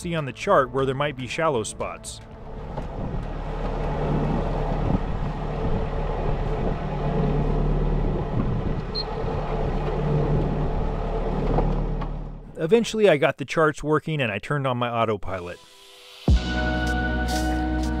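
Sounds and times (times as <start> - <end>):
boat engine humming: 0.0 - 12.9.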